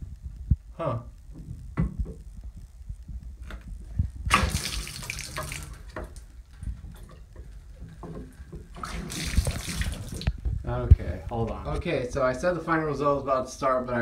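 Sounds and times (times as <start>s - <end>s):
rush of spraying water: 4.3s - 5.8s
shower water running: 4.3s - 7.0s, 8.7s - 10.4s.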